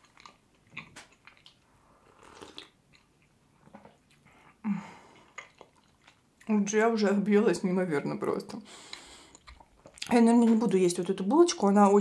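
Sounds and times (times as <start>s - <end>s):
person sipping tea: 1.3s - 6.0s.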